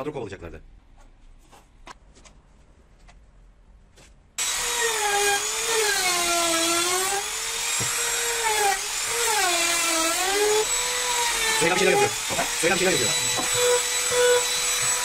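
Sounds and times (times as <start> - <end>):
router motor whine cutting wood: 4.4 - 15.0.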